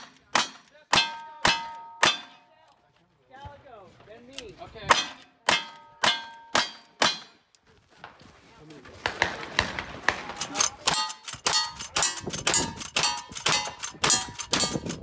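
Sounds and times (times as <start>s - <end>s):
steel plate ringing: 5.5s - 7.2s, 10.9s - 15.0s.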